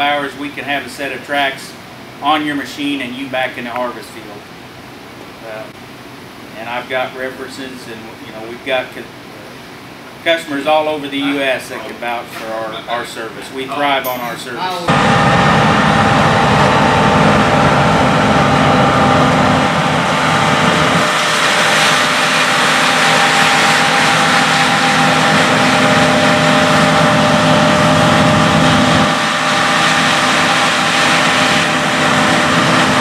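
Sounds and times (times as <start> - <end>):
combine harvester engine drone: 14.7 - 33.0.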